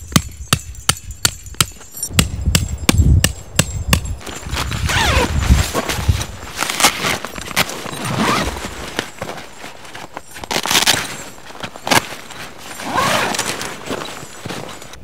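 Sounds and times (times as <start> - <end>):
boots crunching on snow: 4.2 - 15.0
canvas fabric crackling: 4.2 - 15.0.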